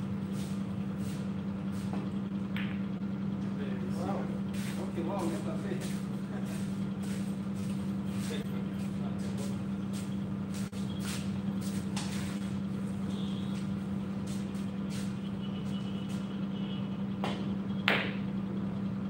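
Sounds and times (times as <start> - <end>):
low machine hum: 0.0 - 19.0
cue tip striking ball: 2.5 - 2.9, 17.2 - 18.2.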